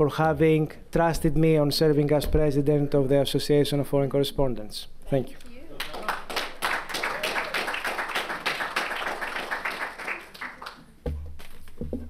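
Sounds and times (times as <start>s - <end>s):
audience applause: 5.8s - 10.9s.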